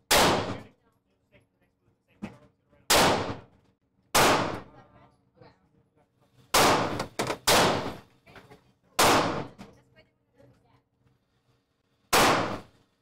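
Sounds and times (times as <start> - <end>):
gunshots echoing indoors: 0.0 - 0.7, 2.9 - 4.7, 6.5 - 8.0, 9.0 - 9.6, 12.1 - 12.8.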